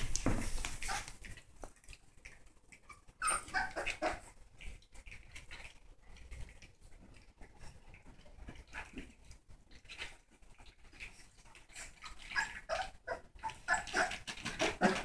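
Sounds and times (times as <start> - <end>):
small clicks and scuffling: 0.0 - 2.9
puppies crying: 2.9 - 4.3, 12.2 - 15.0.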